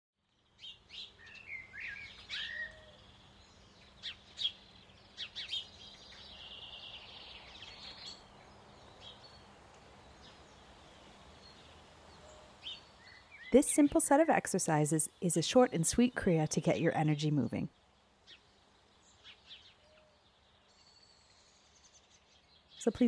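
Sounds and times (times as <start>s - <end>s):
outdoor background noise: 0.2s - 23.0s
birds singing and chirping: 0.6s - 9.4s.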